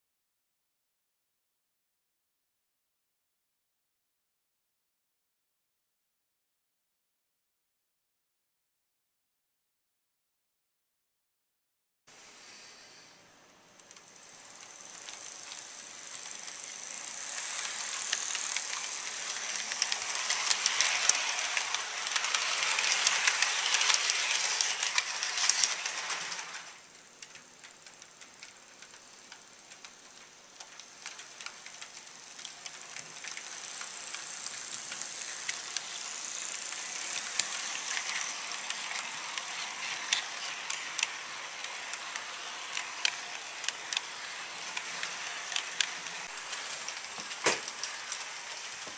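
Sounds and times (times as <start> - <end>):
model train rattling on track: 13.8 - 48.9
wheels clicking over rail joints: 13.8 - 48.9.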